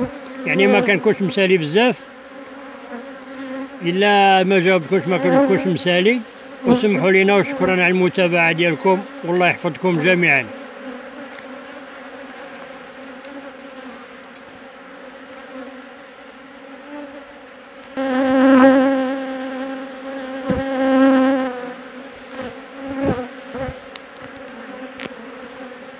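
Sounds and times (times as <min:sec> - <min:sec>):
honeybees buzzing: 0:00.0 - 0:25.9.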